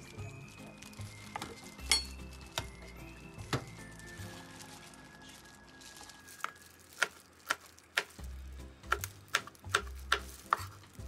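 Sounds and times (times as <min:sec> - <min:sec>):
knife chopping on cutting board: 0:08.9 - 0:10.8.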